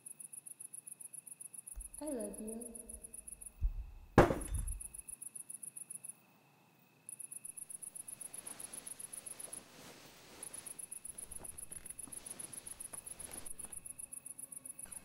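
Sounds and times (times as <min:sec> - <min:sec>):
loud crash with deep thud: 0:04.2 - 0:04.8
cicadas chirping: 0:07.0 - 0:15.0.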